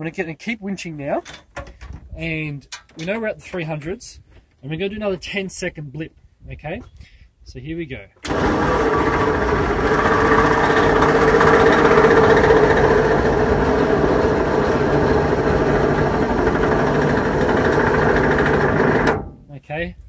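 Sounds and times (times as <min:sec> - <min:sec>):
electric winch motor under load: 0:08.2 - 0:19.3.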